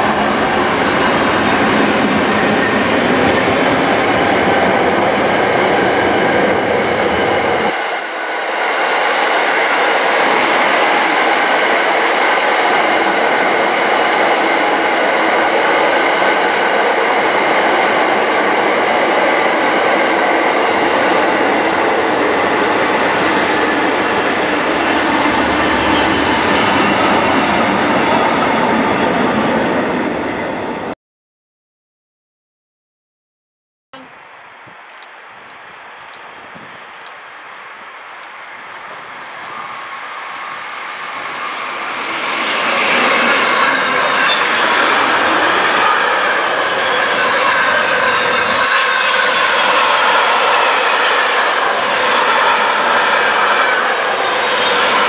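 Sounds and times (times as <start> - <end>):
train wagons rolling on rails: 34.8 - 55.0.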